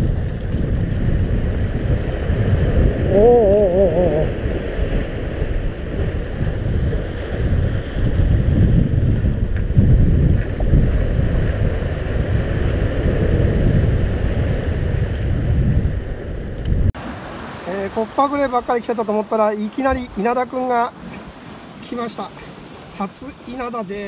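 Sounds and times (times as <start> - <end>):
wind buffeting microphone: 0.0 - 24.0
waves breaking against rocks: 17.0 - 24.0.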